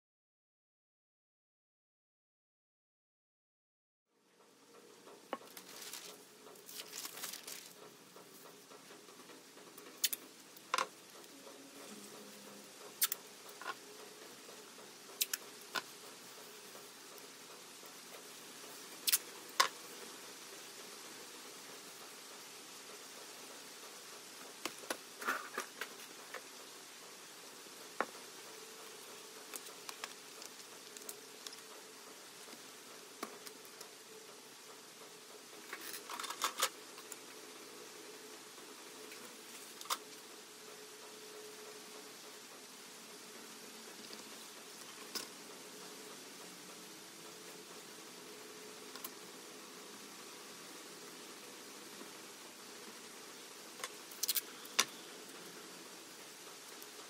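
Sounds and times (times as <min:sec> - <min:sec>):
faint hiss and hum: 0:04.1 - 0:57.0
paper rustling and crinkling: 0:05.4 - 0:07.8.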